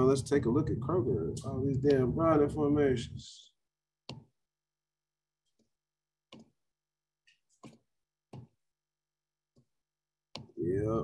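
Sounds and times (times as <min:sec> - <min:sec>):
computer mouse clicks: 0:06.3 - 0:06.6.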